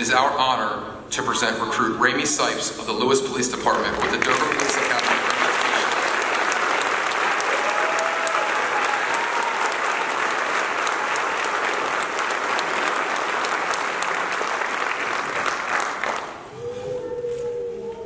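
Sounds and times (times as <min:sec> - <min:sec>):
audience applauding: 0:03.6 - 0:16.6.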